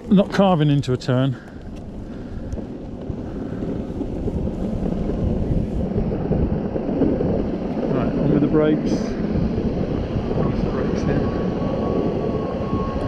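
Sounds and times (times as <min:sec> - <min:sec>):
skateboard wheels rumbling on asphalt: 0:00.0 - 0:13.0
wind buffeting microphone: 0:00.0 - 0:13.0.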